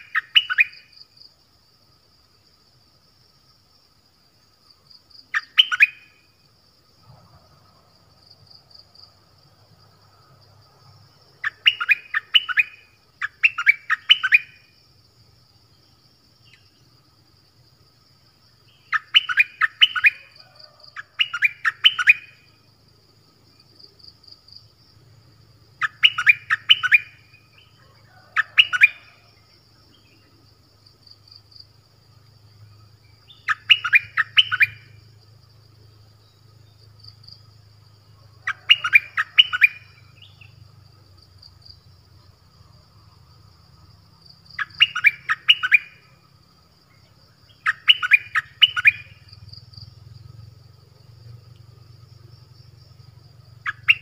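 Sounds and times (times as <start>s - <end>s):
faint high insect buzz: 0.0s - 54.0s
songbird whistling phrases: 5.4s - 6.1s, 11.4s - 14.6s, 18.9s - 22.4s, 25.8s - 27.2s, 28.3s - 29.2s, 33.3s - 34.9s, 38.4s - 40.4s, 44.6s - 46.0s, 47.5s - 49.2s.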